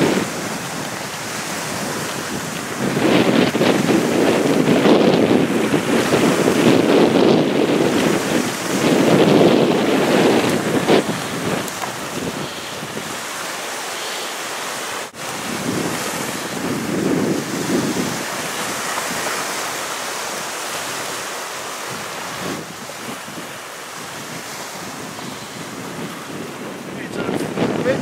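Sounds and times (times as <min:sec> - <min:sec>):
choppy water washing against bank: 0:00.0 - 0:28.0
wind buffeting microphone: 0:00.0 - 0:28.0.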